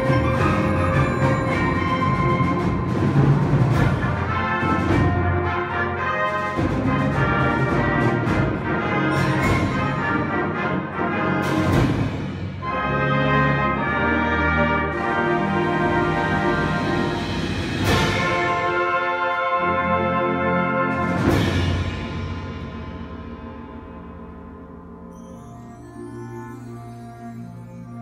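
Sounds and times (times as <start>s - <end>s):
concert band playing: 0.0s - 24.6s
percussion hit: 6.5s - 10.3s.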